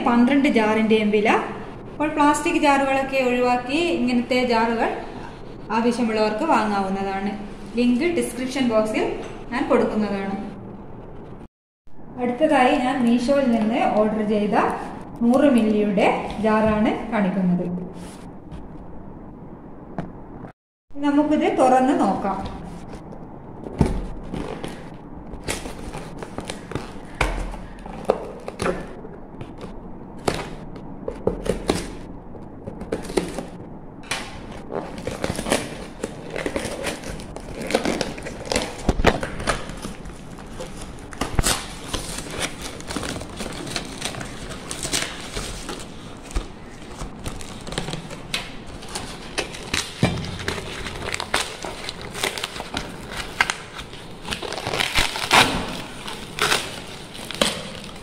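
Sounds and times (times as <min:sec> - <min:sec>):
packing tape ripping off cardboard: 0:32.8 - 0:58.0.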